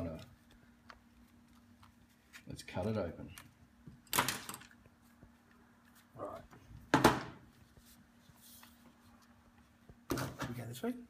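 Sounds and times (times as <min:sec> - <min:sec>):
knocks on workbench: 0:06.9 - 0:07.4.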